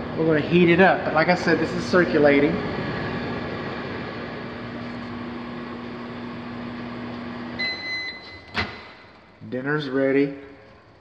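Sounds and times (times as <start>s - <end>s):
microwave oven humming: 0.0s - 9.5s
microwave oven beeping: 5.3s - 9.2s.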